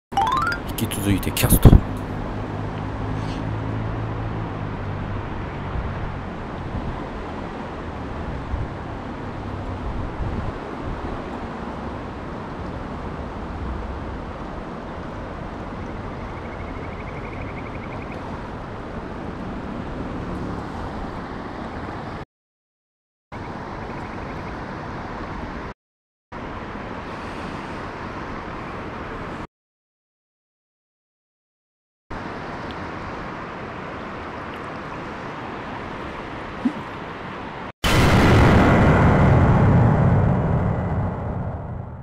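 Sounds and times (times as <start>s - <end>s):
flowing river water: 32.2s - 37.7s.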